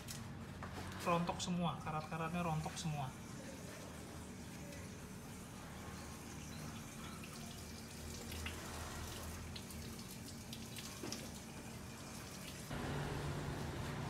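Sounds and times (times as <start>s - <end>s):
water trickling and dripping: 1.9s - 12.7s.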